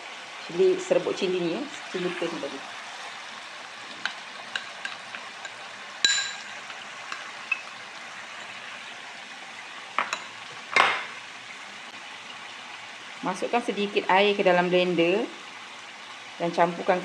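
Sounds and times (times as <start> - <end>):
paste sizzling in oil: 0.8 - 10.7
sharp ringing clink: 6.0 - 6.5.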